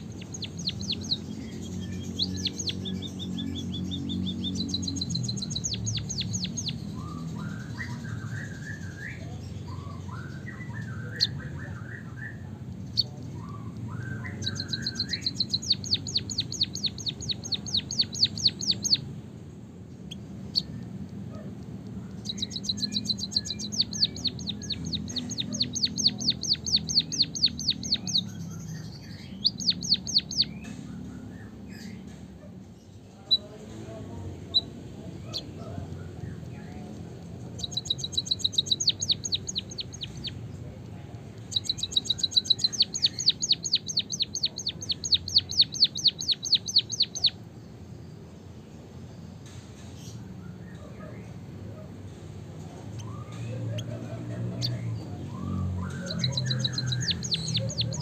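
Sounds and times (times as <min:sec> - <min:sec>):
bird singing high trills: 0:00.0 - 0:12.4, 0:13.0 - 0:19.1, 0:22.2 - 0:32.0, 0:37.6 - 0:40.4, 0:41.4 - 0:47.4, 0:54.6 - 0:58.0.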